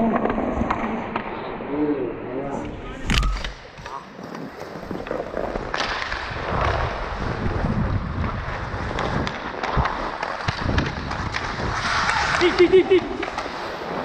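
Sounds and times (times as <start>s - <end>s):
wind buffeting microphone: 2.6s - 13.4s
sharp clicks: 3.0s - 3.9s
skate blades scraping ice: 3.2s - 14.0s.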